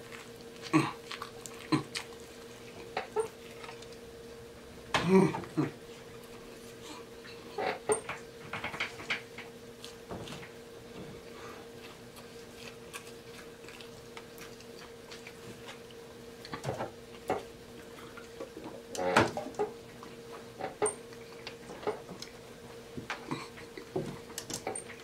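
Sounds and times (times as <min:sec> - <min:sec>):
wet chewing and lip smacking: 0:00.0 - 0:04.1, 0:11.2 - 0:18.6
steady low hum: 0:00.0 - 0:25.0
gulping a drink: 0:00.6 - 0:02.1.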